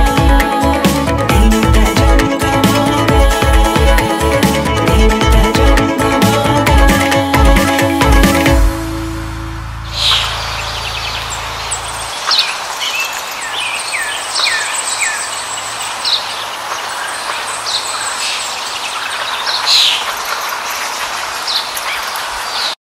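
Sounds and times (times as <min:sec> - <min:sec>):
steady outdoor hiss: 0:00.0 - 0:22.8
low hum: 0:08.0 - 0:13.3
birds chirping: 0:09.8 - 0:22.8.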